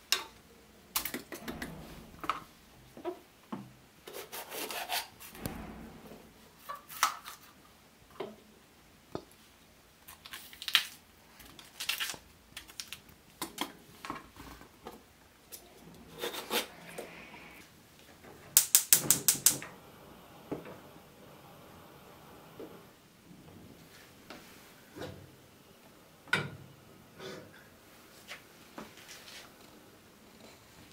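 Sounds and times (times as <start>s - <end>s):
gas burner igniter clicking: 18.6s - 19.8s.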